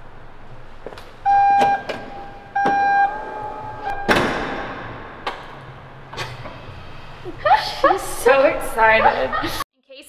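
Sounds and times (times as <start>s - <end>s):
warning beeps: 1.2s - 4.3s
tailgate thumping shut: 3.9s - 5.6s.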